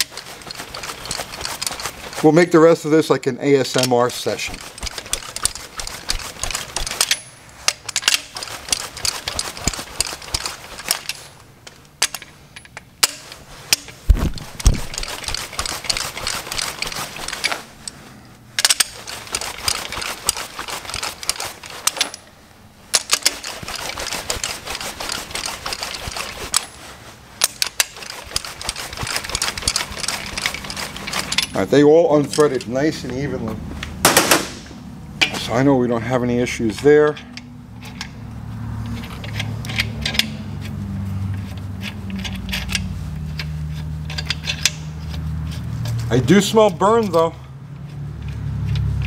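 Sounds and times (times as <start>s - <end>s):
socket ratchet clicking: 18.6s - 22.2s.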